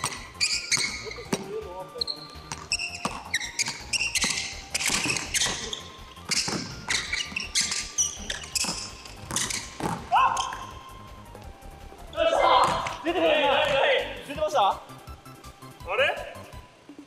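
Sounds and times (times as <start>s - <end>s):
basketball bouncing on wooden floor: 0.0s - 1.5s, 2.3s - 10.6s
basketball shoes squeaking: 0.0s - 11.6s.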